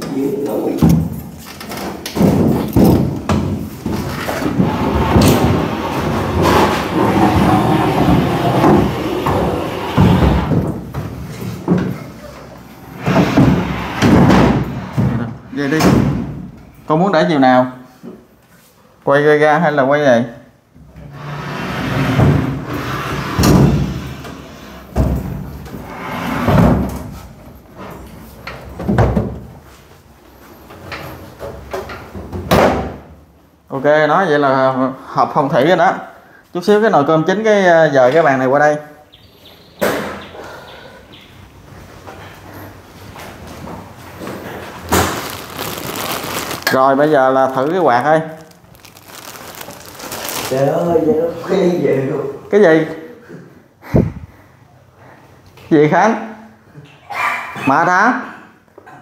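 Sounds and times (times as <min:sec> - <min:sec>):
furniture scraping on floor: 0:03.9 - 0:10.8, 0:12.9 - 0:15.2, 0:21.0 - 0:24.9, 0:25.8 - 0:27.0.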